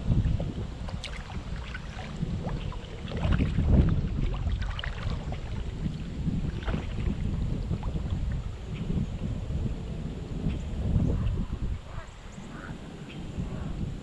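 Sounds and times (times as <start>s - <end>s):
water splashing around kayak paddle: 0.0s - 11.0s
low wind rumble on microphone: 0.0s - 14.0s.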